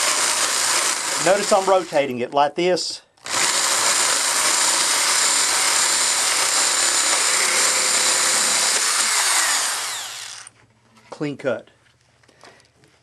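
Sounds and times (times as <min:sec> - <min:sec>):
electric drill whirring: 0:00.0 - 0:02.0, 0:03.2 - 0:10.5.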